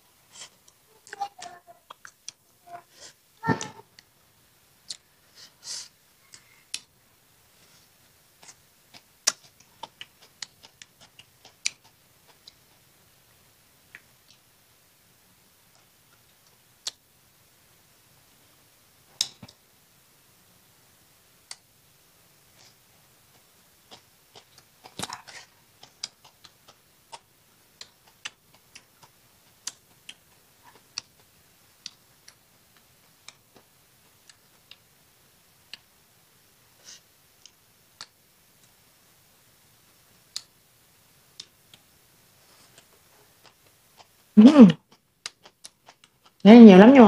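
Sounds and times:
person chewing crunchy salad: 0:44.9 - 0:46.4.

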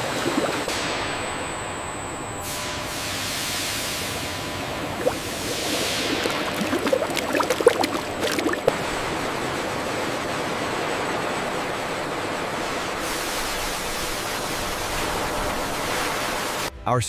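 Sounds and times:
oil pouring into metal tank: 0:05.0 - 0:08.7.

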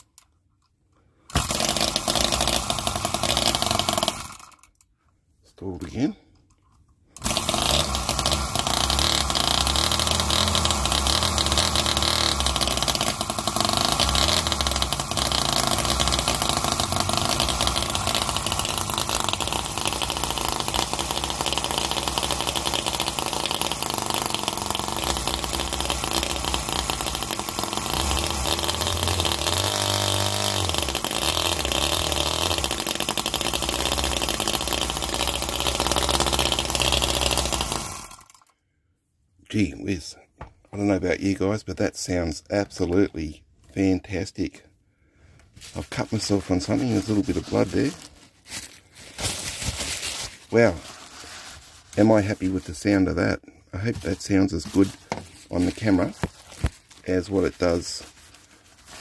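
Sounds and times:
small petrol engine running: 0:01.3 - 0:04.7, 0:07.2 - 0:38.5.

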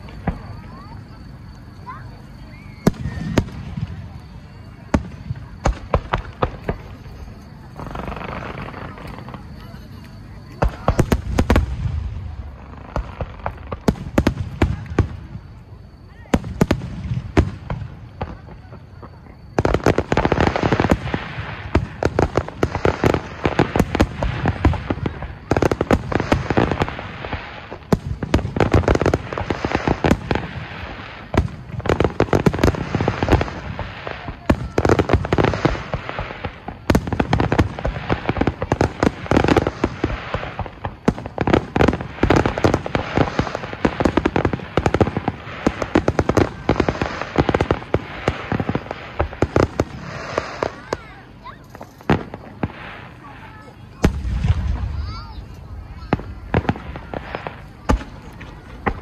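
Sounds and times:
fireworks bangs and crackles: 0:00.0 - 0:59.0.

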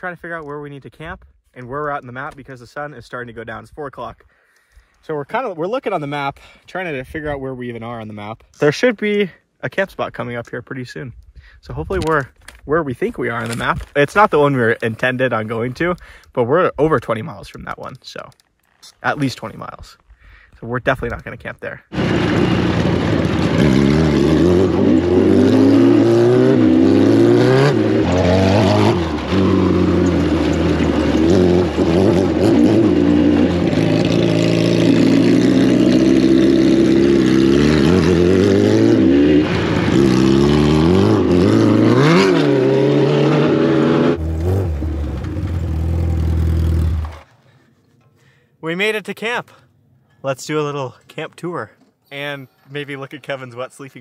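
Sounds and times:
motorcycle engines revving: 0:22.0 - 0:47.3.

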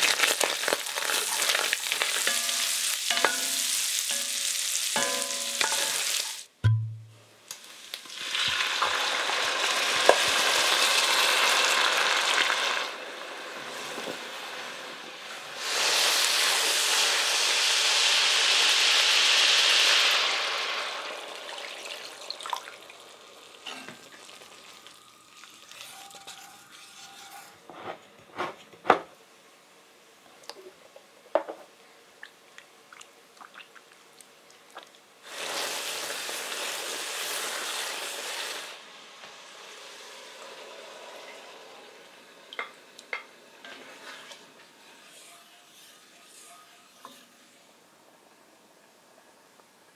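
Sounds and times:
wine sizzling in hot pot: 0:00.0 - 0:06.6, 0:07.5 - 0:27.6, 0:35.2 - 0:48.1
wooden spoon scraping pot: 0:25.4 - 0:28.7.

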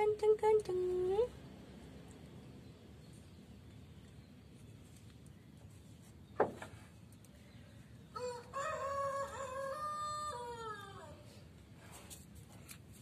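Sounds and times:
rooster crowing: 0:08.1 - 0:11.2.

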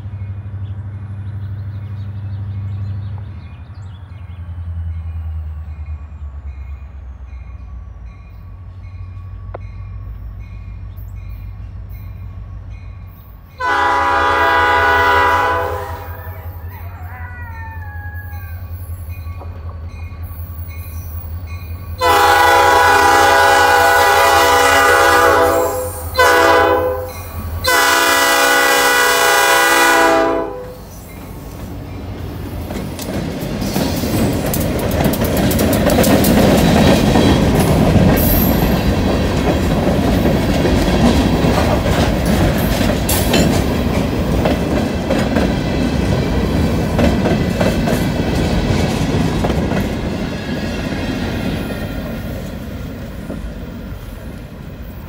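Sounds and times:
diesel locomotives rumbling: 0:00.0 - 0:55.0
locomotive air horn blasts: 0:13.6 - 0:16.5, 0:22.0 - 0:30.9
train wheels clacking on rails: 0:30.8 - 0:54.5.

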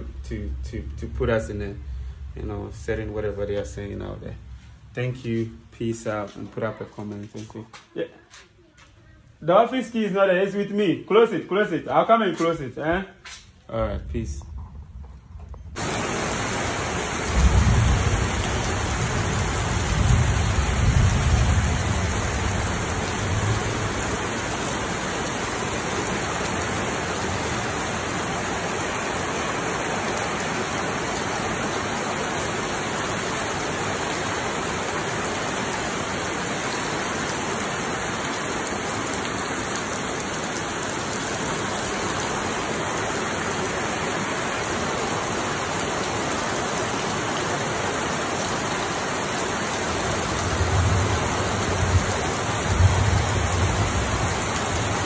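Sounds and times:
heavy rain falling: 0:14.0 - 0:55.0.

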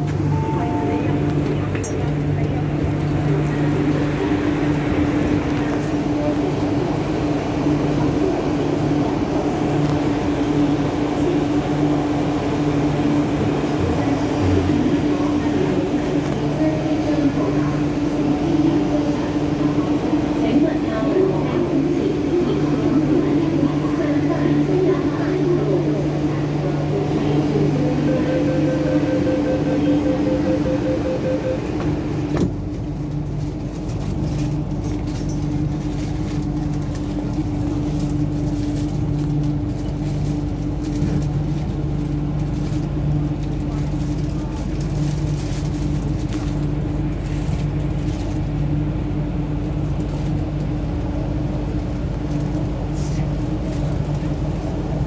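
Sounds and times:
muffled station noise: 0:00.0 - 0:55.0
train hum: 0:00.0 - 0:55.0
wheels rumbling on track: 0:00.0 - 0:55.0
low hum: 0:27.2 - 0:32.8
door-closing warning beeps: 0:28.1 - 0:32.5
train doors shutting with knock: 0:31.7 - 0:32.7.

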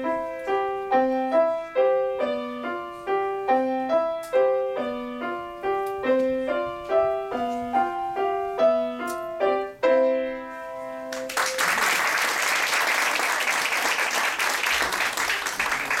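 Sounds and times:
grand piano playing: 0:00.0 - 0:11.6
audience applause: 0:11.1 - 0:16.0.

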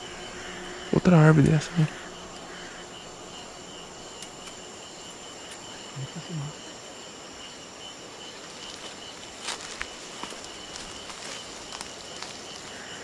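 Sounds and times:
night insects trilling: 0:00.0 - 0:13.0
crackles in dry leaves: 0:08.2 - 0:13.0.

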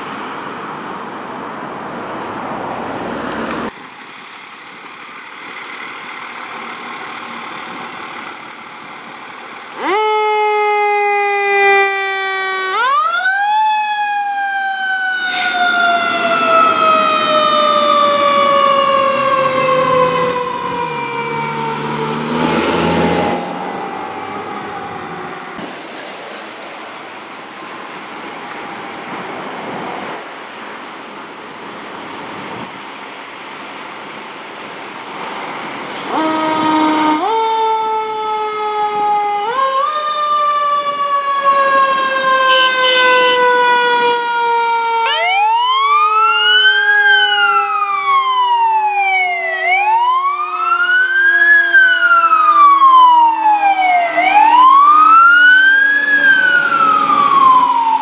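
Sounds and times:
fire truck siren winding: 0:09.7 - 0:25.4, 0:36.0 - 0:58.0
wailing siren: 0:09.7 - 0:25.6, 0:36.0 - 0:58.0.

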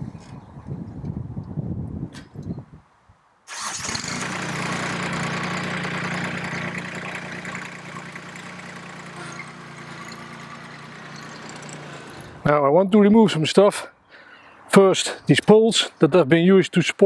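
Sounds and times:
diesel tractor engine idling: 0:03.5 - 0:12.4.

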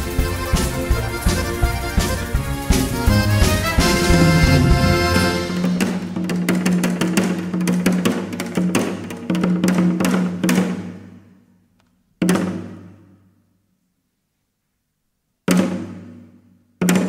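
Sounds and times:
full band hit: 0:00.0 - 0:07.3
drum strokes: 0:00.0 - 0:07.6
held bass note: 0:02.7 - 0:06.3.

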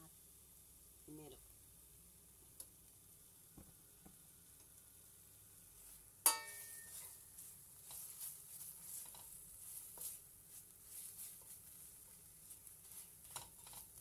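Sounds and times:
paste and onions frying in oil: 0:00.0 - 0:14.0
metal spoon clanking against pan: 0:06.2 - 0:07.1.

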